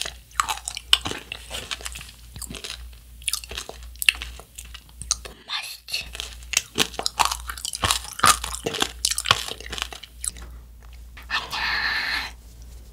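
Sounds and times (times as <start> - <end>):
crunching brittle candy shell: 0.0 - 5.4, 6.0 - 10.4.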